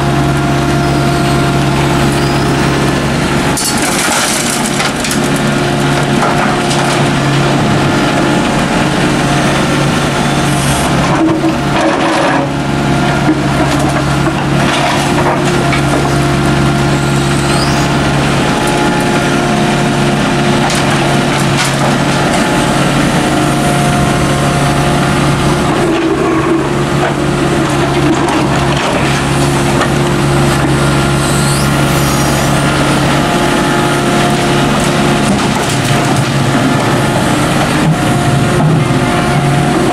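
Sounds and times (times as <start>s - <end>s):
diesel engine running: 0.0s - 39.9s
rubble clattering into steel truck bed: 3.6s - 5.5s, 11.1s - 12.6s.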